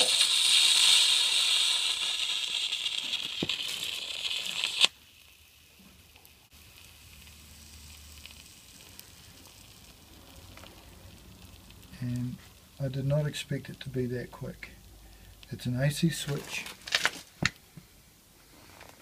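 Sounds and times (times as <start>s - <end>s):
sharp crack: 0.0s - 5.0s, 15.4s - 17.7s
electric arc sizzling: 0.0s - 14.7s.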